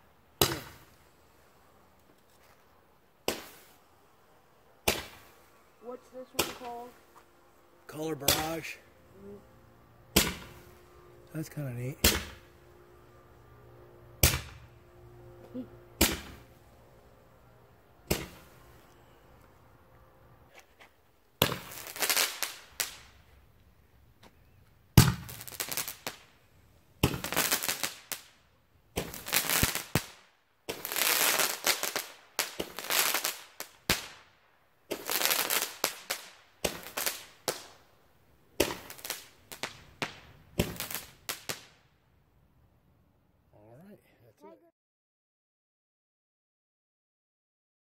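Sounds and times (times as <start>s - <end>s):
roman candle pops with hiss: 3.2s - 3.8s, 18.1s - 18.5s, 38.6s - 41.7s.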